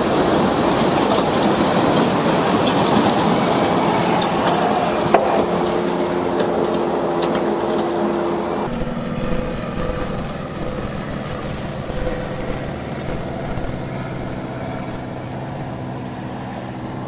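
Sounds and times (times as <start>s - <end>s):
faint steady hum: 8.7s - 17.0s.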